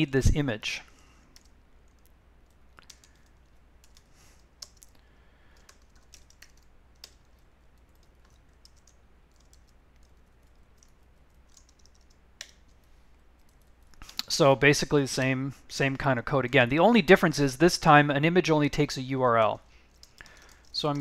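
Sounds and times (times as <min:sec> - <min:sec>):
keyboard typing: 0:01.3 - 0:14.2, 0:19.9 - 0:21.0.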